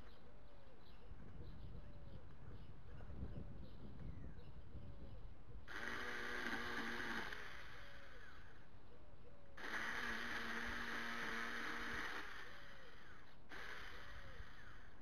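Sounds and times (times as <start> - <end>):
electric chainsaw whine: 5.7 - 8.7, 9.6 - 15.0.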